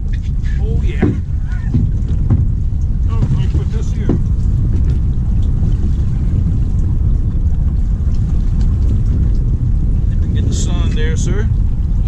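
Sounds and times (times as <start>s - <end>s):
sea: 0.0s - 12.0s
wind: 0.0s - 12.0s.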